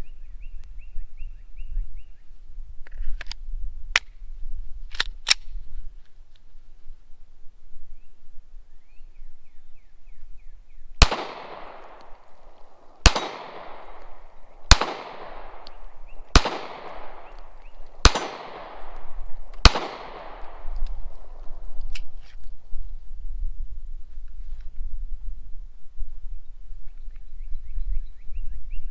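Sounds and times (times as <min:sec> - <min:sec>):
light clicks of pistol slide: 0:04.9 - 0:05.6, 0:11.1 - 0:19.7, 0:20.4 - 0:22.5
pistol shots with echo: 0:11.0 - 0:21.6.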